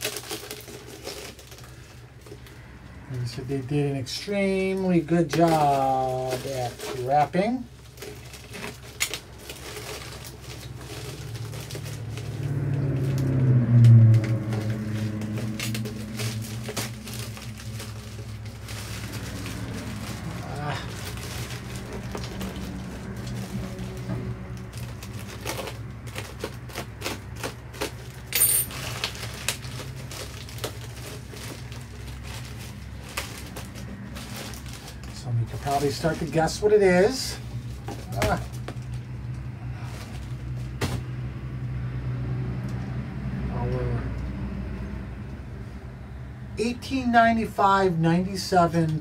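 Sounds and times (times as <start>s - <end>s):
bubble wrap rustling and crinkling: 0.0s - 41.2s
low steady hum: 6.1s - 41.8s.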